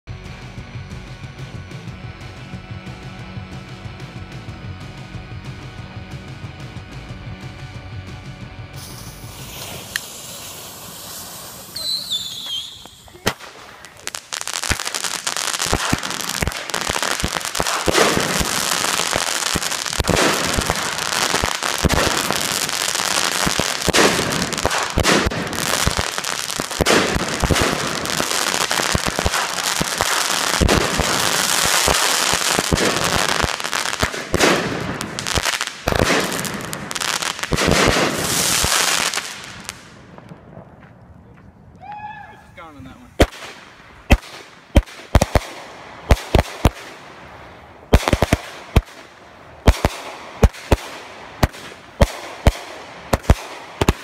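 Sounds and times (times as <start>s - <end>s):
firework crackling hiss: 8.8s - 40.2s, 42.7s - 54.0s
firework launches and pops: 8.8s - 40.8s, 43.2s - 54.0s.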